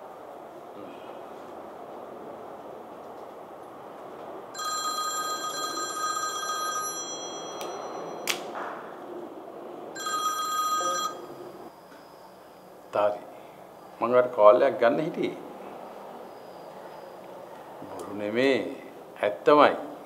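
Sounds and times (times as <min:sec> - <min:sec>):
desk telephone ringing: 0:04.6 - 0:08.3, 0:10.0 - 0:11.7.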